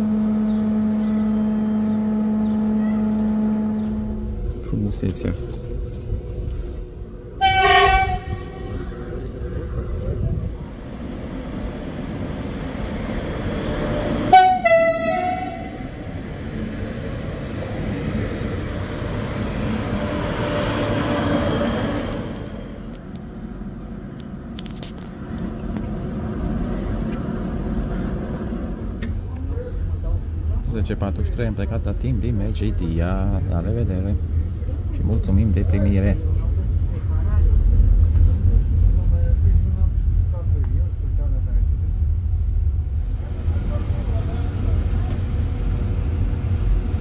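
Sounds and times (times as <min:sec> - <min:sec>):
train horn blasts: 0:00.0 - 0:04.6, 0:07.3 - 0:08.9, 0:14.2 - 0:16.0
train rumbling: 0:00.0 - 0:47.0.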